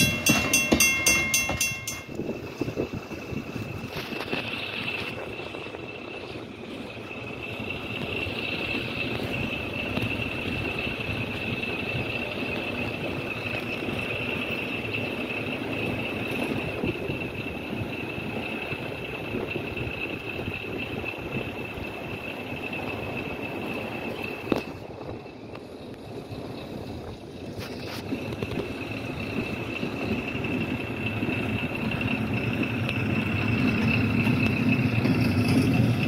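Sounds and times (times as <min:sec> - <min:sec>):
engine running with high whine: 0:00.0 - 0:36.0.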